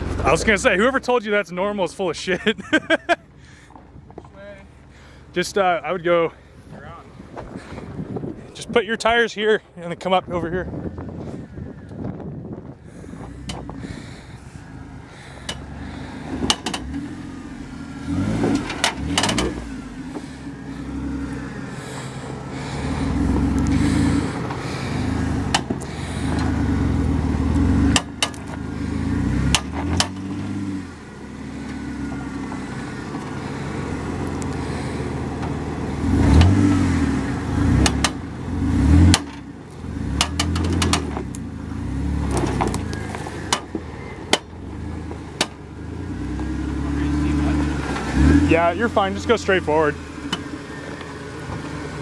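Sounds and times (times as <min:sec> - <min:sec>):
engine running at low speed: 0:10.4 - 0:52.0
sharp knocks and clicks: 0:16.4 - 0:17.0, 0:18.5 - 0:19.6, 0:27.9 - 0:28.6, 0:37.8 - 0:38.2, 0:40.2 - 0:41.4, 0:45.4 - 0:45.6.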